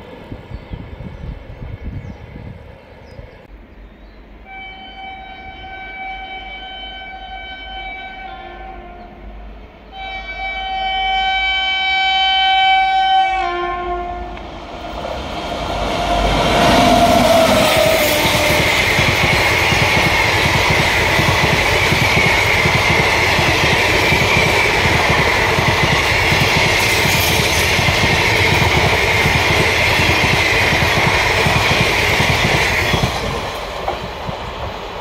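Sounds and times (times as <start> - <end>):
train passing with rush: 0.0 - 35.0
locomotive air horn: 4.4 - 9.3, 9.9 - 14.4, 16.1 - 18.8.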